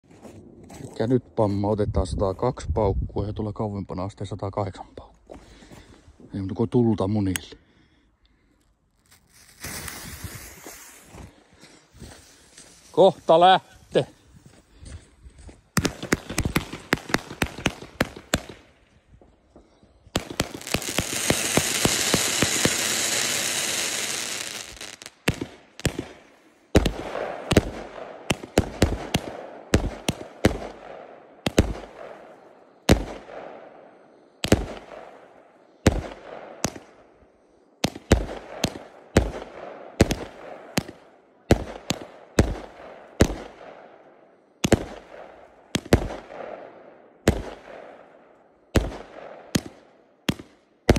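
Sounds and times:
firework crackling: 0:09.1 - 0:11.2, 0:15.8 - 0:18.6, 0:20.2 - 0:26.2
firework hissing: 0:09.2 - 0:11.2, 0:20.3 - 0:25.1
firework bangs: 0:15.8 - 0:18.7, 0:20.2 - 0:32.2, 0:34.4 - 0:35.2, 0:37.8 - 0:43.6.

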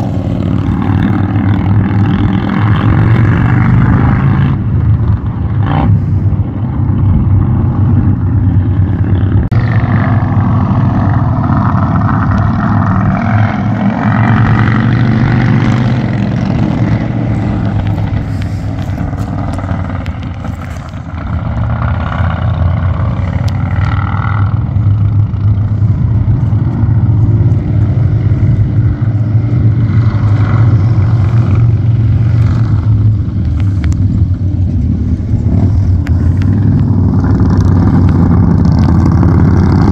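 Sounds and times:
low engine drone: 0:00.0 - 0:39.9
passing traffic: 0:00.0 - 0:39.9.

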